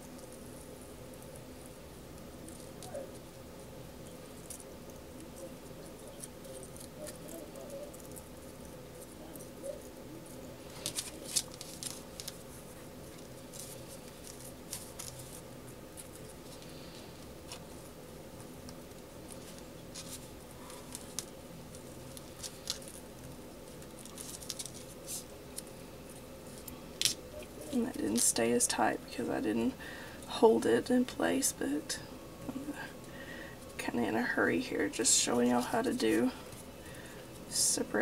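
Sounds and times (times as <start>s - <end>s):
steady hum: 0.0s - 38.0s
hands handling ribbon rustling: 4.0s - 28.7s, 34.8s - 37.8s.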